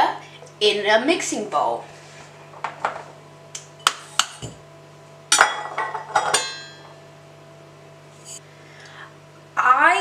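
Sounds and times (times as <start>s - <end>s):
metal cups clinking: 5.3s - 7.0s.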